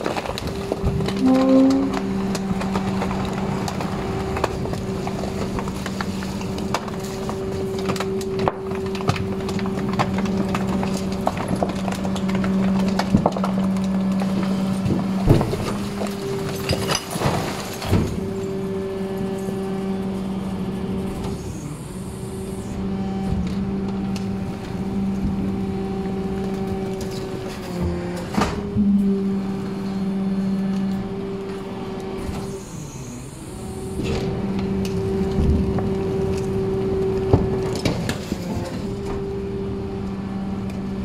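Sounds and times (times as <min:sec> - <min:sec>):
waste being crushed: 0:00.0 - 0:21.5, 0:33.5 - 0:41.0
hydraulic hum of compactor: 0:00.0 - 0:41.0.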